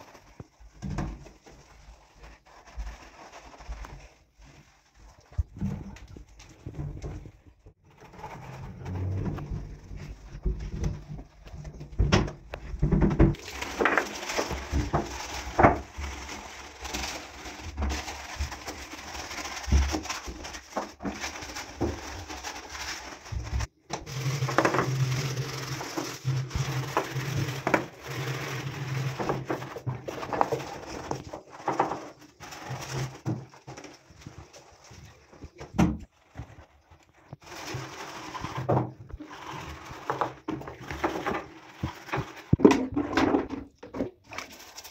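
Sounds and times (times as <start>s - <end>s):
sponge scrubbing glass and tile: 0.0s - 44.9s.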